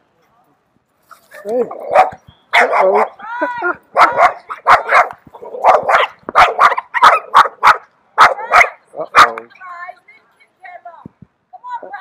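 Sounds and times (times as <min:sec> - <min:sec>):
dog barking rapidly: 0:01.7 - 0:03.2, 0:03.9 - 0:09.4.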